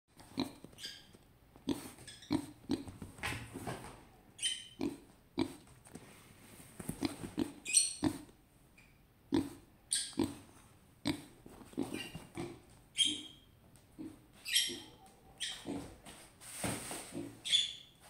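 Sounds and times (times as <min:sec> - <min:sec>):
pigs grunting: 0:04.8 - 0:05.6, 0:09.3 - 0:13.3, 0:13.9 - 0:16.0
pigs squealing: 0:11.8 - 0:13.4, 0:14.0 - 0:15.9.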